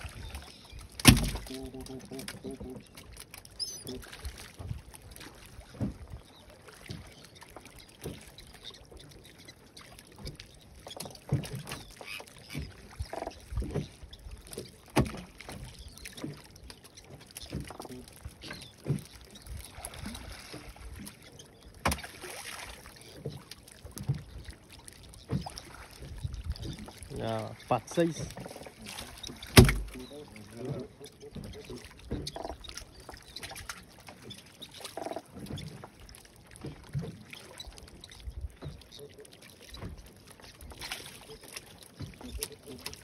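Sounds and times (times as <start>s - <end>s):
knocks in rocking boat: 0.0s - 2.8s, 5.7s - 6.3s, 8.0s - 8.2s, 10.2s - 16.4s, 17.1s - 19.4s, 21.8s - 22.2s, 23.2s - 24.5s, 25.2s - 35.9s
water lapping against boat hull: 0.0s - 43.0s.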